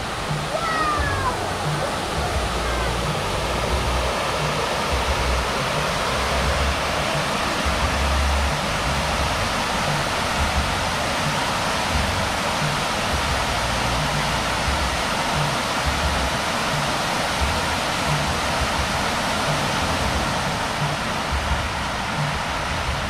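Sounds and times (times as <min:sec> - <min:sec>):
low rumble: 0:00.0 - 0:09.7
fountain water splashing: 0:00.0 - 0:23.0.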